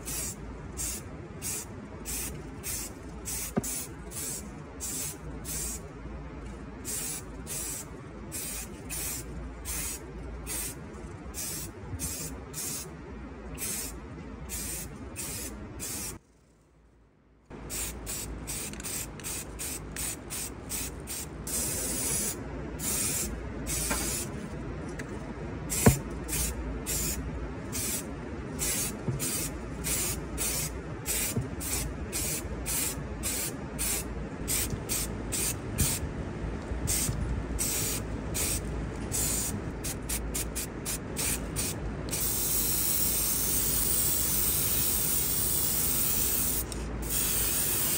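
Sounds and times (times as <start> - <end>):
steady low hum: 0.0 - 47.9
spray can hissing: 28.6 - 36.0, 36.9 - 38.6, 39.2 - 47.9.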